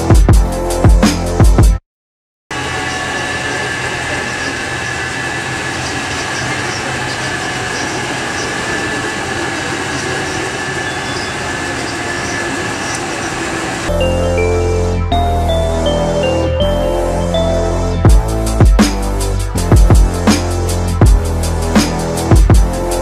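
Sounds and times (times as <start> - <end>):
washers and dryers rumbling: 2.5 - 14.8.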